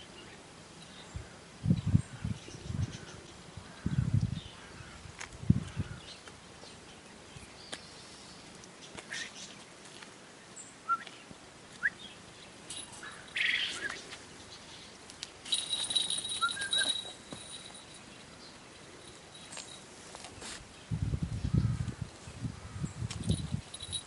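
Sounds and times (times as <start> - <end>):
wing and feather rustle: 12.3 - 24.0
thin high ringing: 12.7 - 14.0, 15.4 - 20.3, 23.2 - 24.0.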